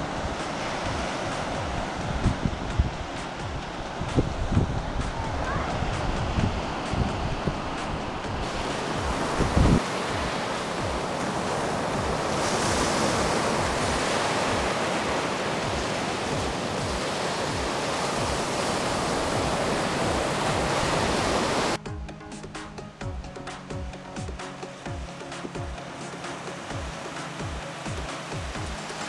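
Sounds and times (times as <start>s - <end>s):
waves washing up a beach: 0.0s - 21.8s, 24.3s - 29.0s
wind buffeting microphone: 0.0s - 21.8s
music: 0.0s - 29.0s.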